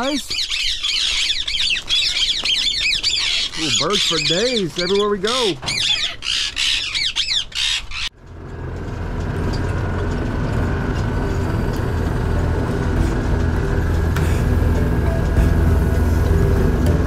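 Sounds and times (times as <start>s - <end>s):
birds squawking: 0.0s - 8.2s
low mechanical rumble: 7.9s - 17.0s.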